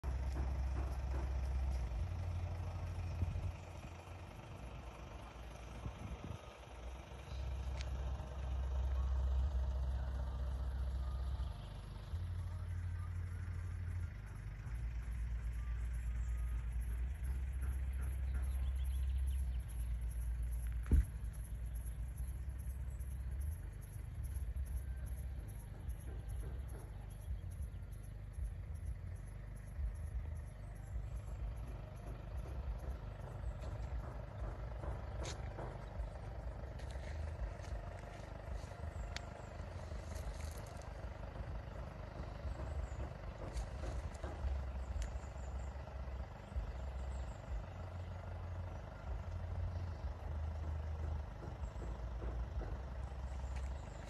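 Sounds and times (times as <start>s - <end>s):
wind buffeting microphone: 5.7s - 6.6s.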